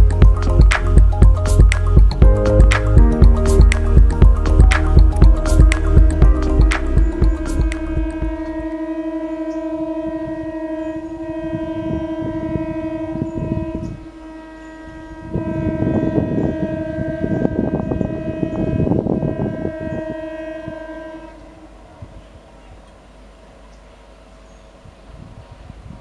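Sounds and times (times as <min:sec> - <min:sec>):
train horn: 0:07.1 - 0:22.8.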